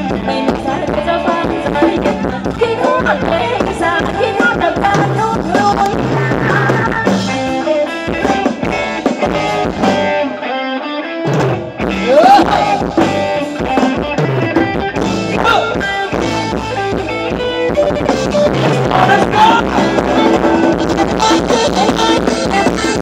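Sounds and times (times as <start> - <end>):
person singing: 0.0 - 8.4, 18.3 - 23.0
drum kit: 0.0 - 10.4, 11.2 - 23.0
bass: 0.0 - 10.5, 11.2 - 23.0
electric guitar: 0.0 - 23.0.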